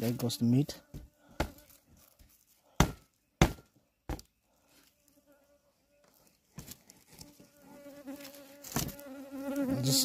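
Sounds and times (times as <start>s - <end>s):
knife chopping raw meat: 2.8s - 3.6s
insect buzzing faintly: 7.0s - 10.0s.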